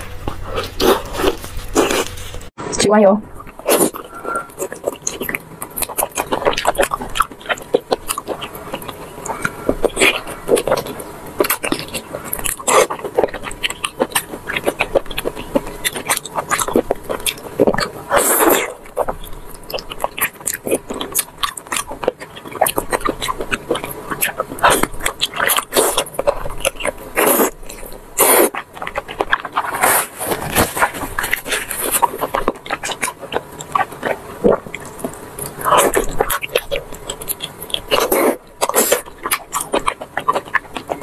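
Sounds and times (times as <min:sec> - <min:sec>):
close chewing and biting: 0:00.0 - 0:02.6, 0:03.3 - 0:41.0.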